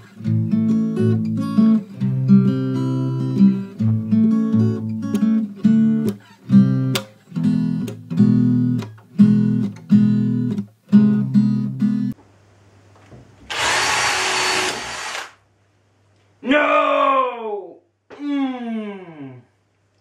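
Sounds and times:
strummed guitar music: 0.0 - 12.2
cordless drill into wood: 13.5 - 15.4.

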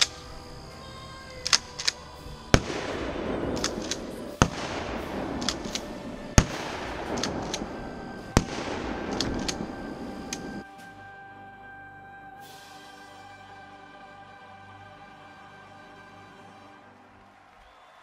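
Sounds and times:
shotgun shots: 1.5 - 10.6.

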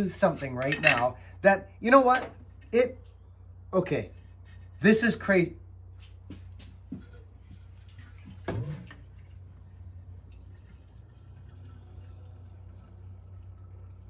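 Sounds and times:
fuel trickling into tank: 7.4 - 14.0.

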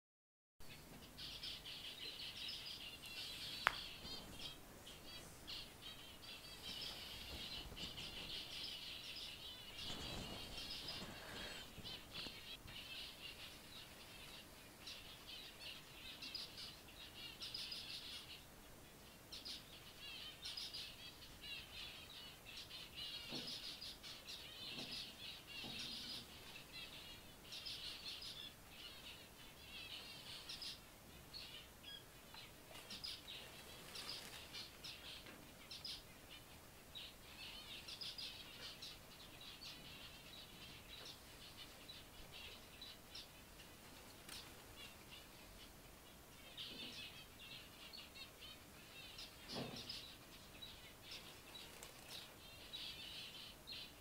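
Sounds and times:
finches calling and chattering: 0.6 - 54.0.

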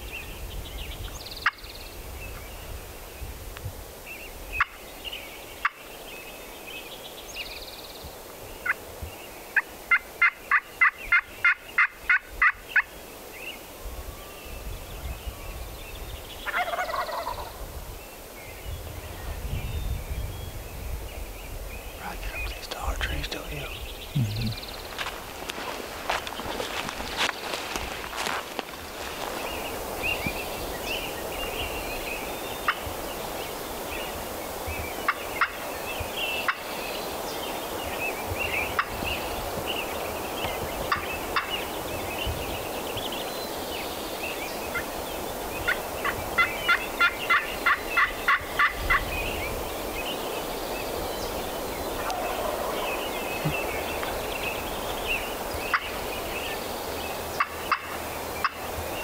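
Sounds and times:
songbirds chirping: 0.0 - 59.0
turkey calling: 16.4 - 17.6, 52.0 - 54.1, 57.4 - 58.6.

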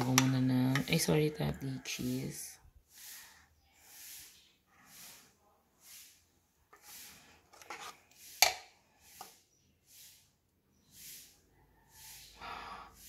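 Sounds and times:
metal spoon scraping in bowl: 0.0 - 2.2, 7.5 - 9.3.

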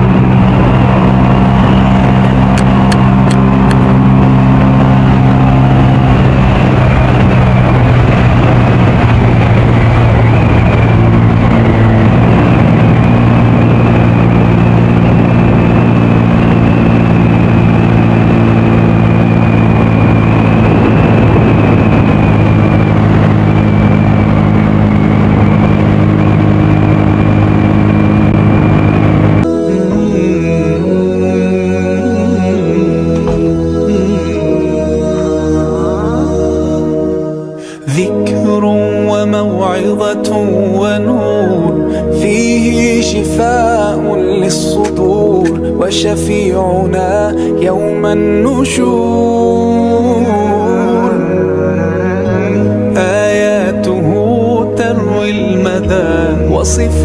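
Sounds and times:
wind rush over microphone: 0.0 - 29.5
motorcycle engine cruising: 0.0 - 57.0.

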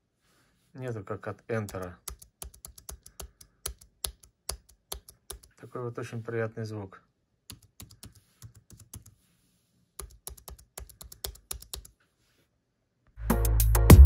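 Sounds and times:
keyboard keys clicking: 1.6 - 5.6, 10.0 - 11.9
loud music with deep bass: 13.2 - 14.0.

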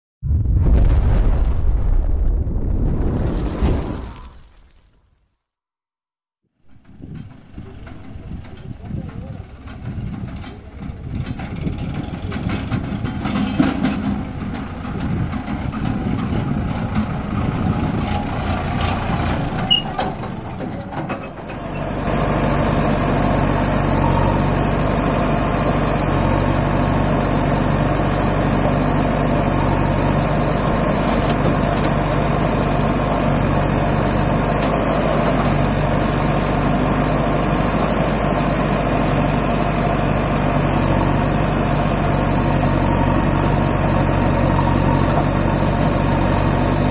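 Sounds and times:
tractor diesel engine running unevenly: 6.6 - 46.9
diesel engines idling: 6.7 - 46.9.

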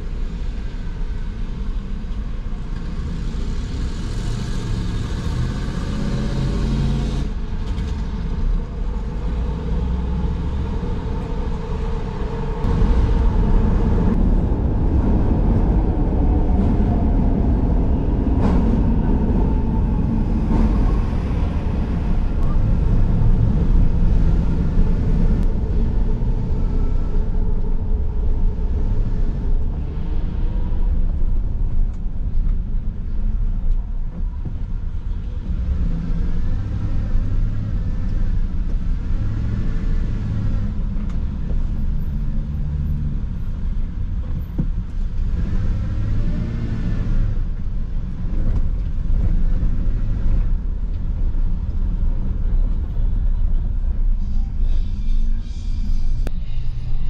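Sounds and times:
car engine and tyre rumble: 0.0 - 57.0.

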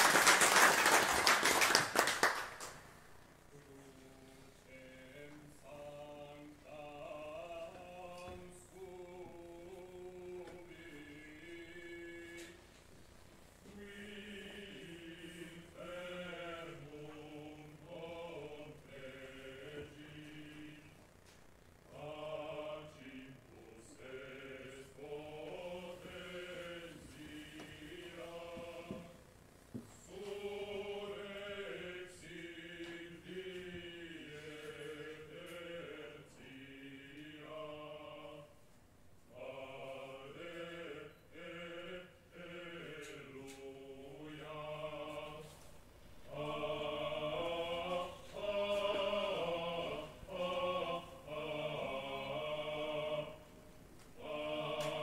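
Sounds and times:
person singing a cappella chant: 3.5 - 12.6, 13.6 - 21.0, 30.0 - 38.6, 39.3 - 45.6, 46.3 - 53.6, 54.2 - 55.0.

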